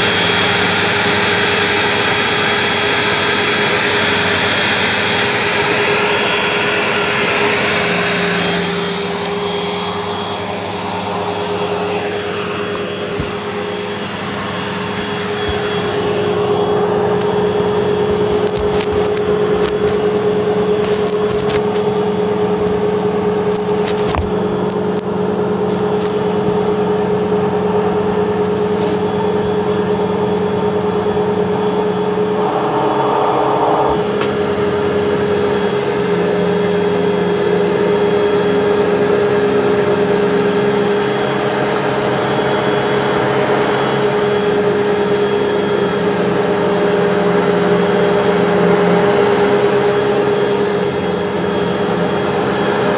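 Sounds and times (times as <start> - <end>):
vacuum cleaner motor whining: 0.0 - 52.9
loud rushing: 32.1 - 35.0.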